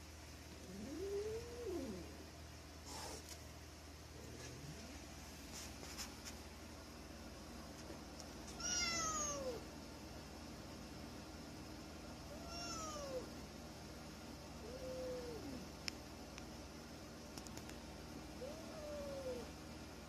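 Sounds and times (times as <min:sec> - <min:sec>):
cat meowing: 0:08.6 - 0:09.6, 0:12.3 - 0:13.3.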